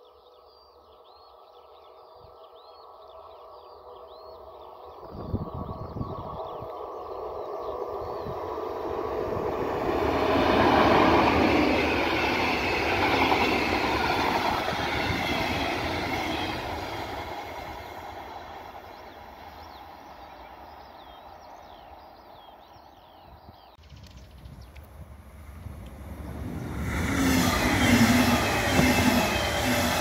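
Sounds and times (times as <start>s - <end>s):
train passing at speed: 0.8s - 23.1s, 24.8s - 30.0s.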